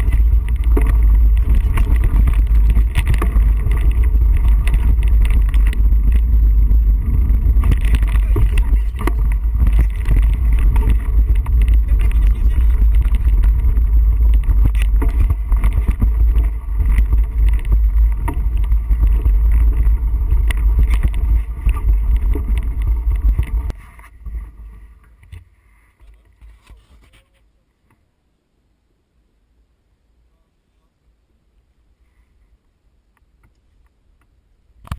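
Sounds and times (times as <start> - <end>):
bike rumbling over rocky ground: 0.0 - 26.7
bike rattles and knocks: 0.0 - 27.2.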